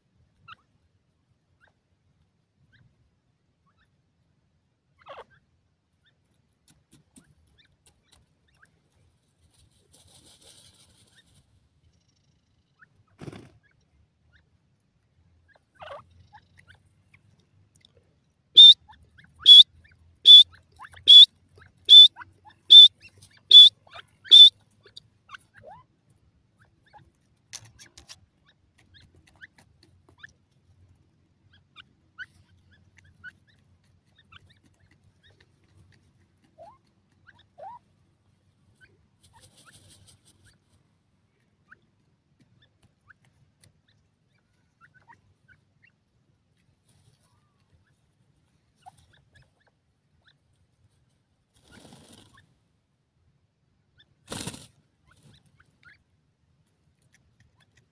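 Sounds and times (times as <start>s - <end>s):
faint ticks and scratches: 6.0s - 14.0s, 20.3s - 45.4s, 46.5s - 49.7s, 56.6s - 57.9s
francolin calling: 18.6s - 25.0s.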